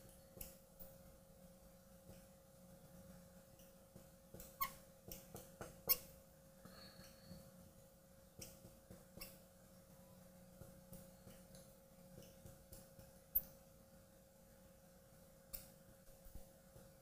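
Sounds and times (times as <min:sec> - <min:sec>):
faint steady hum: 0:00.0 - 0:17.0
marker squeaking on glass: 0:04.4 - 0:04.8, 0:05.8 - 0:06.1, 0:09.2 - 0:09.4.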